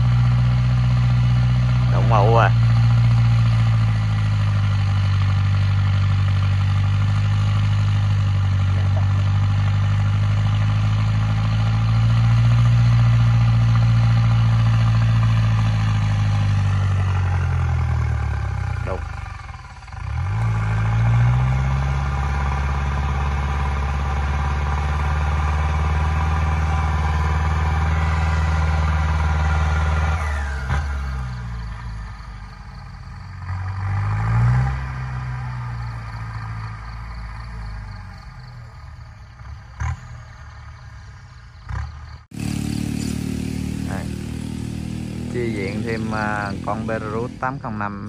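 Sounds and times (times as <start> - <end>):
tractor diesel engine working hard: 0.0 - 48.0.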